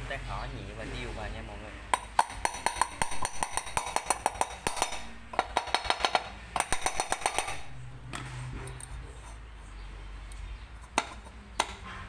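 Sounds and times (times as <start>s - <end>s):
hammer tapping on metal: 1.9s - 8.3s, 10.8s - 12.0s.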